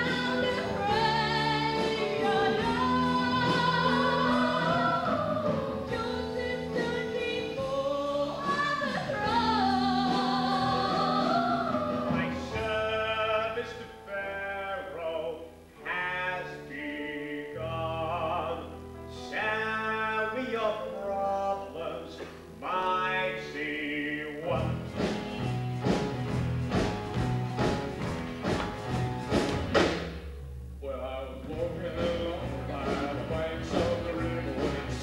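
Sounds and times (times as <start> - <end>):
woman singing into a microphone: 0.0 - 12.5
stage band accompaniment: 0.0 - 14.6, 16.0 - 35.0.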